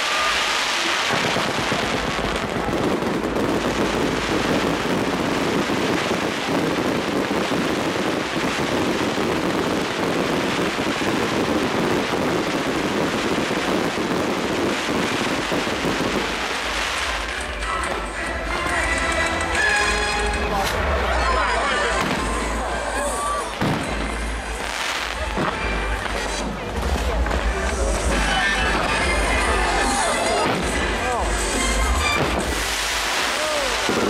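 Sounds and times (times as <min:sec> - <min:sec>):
firework crackling: 0:00.0 - 0:34.0.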